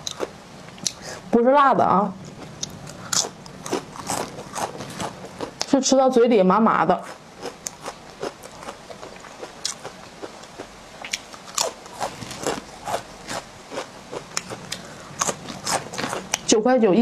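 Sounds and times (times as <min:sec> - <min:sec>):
crunchy chips being chewed: 0:02.2 - 0:05.7, 0:07.0 - 0:16.5.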